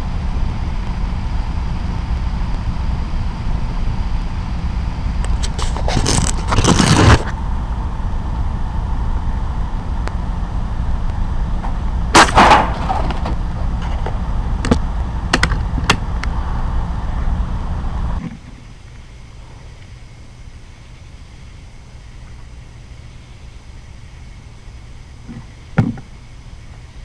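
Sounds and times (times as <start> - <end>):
steady low hum: 0.0 - 27.0
air rifle shots: 12.2 - 13.2.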